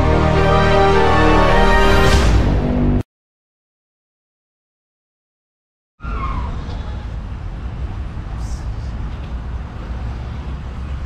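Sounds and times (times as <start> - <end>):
low traffic rumble: 6.0 - 11.0.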